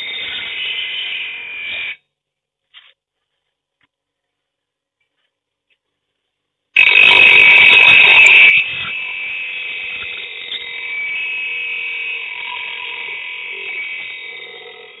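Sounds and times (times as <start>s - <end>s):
bench grinder grinding steel: 0.0s - 2.0s, 6.8s - 15.0s
grinder wheel whining: 0.0s - 2.0s, 6.8s - 15.0s.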